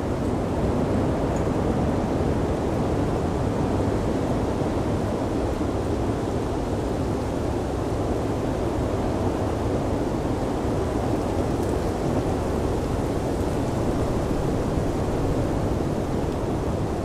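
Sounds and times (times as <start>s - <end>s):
blizzard wind rushing: 7.6s - 17.0s.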